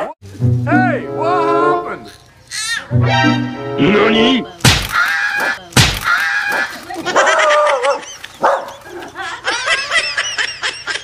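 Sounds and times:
high wavering animal cries: 2.1 - 3.0, 4.9 - 8.1
basket landing thump: 4.6 - 5.0, 5.8 - 6.1.

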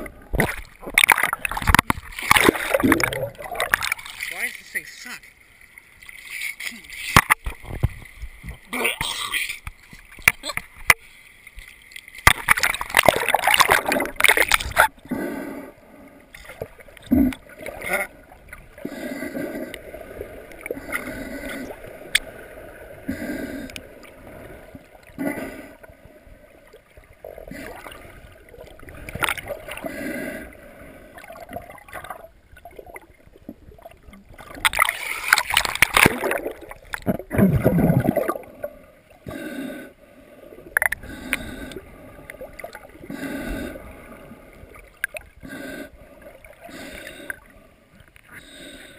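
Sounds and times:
muffled underwater gurgling: 0.0 - 4.1
loud water splashing: 0.3 - 4.5, 12.2 - 14.9, 34.4 - 38.4.

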